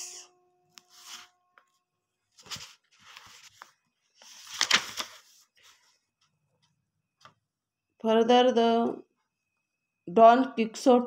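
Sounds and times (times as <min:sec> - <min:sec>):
book pages rustling: 0:00.8 - 0:01.7, 0:02.3 - 0:07.4.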